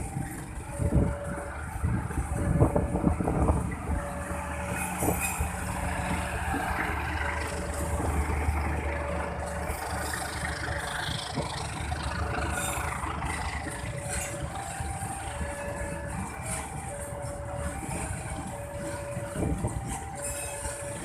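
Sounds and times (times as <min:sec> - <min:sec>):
motorcycles idling: 0:00.0 - 0:21.0
train wheels on rails: 0:00.0 - 0:21.0.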